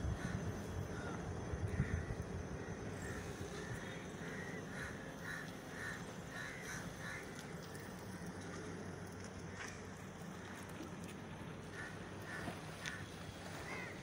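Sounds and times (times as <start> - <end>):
low background rumble: 0.0 - 14.0
crows cawing: 0.2 - 7.5, 11.7 - 14.0.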